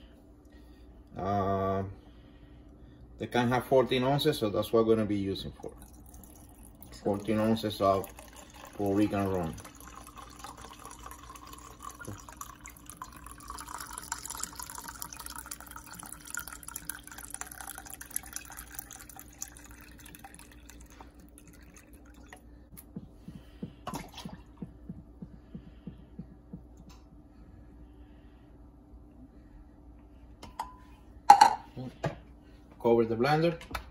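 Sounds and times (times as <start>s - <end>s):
liquid pouring into metal can: 5.6s - 22.5s
splashes and knocks: 23.8s - 24.8s.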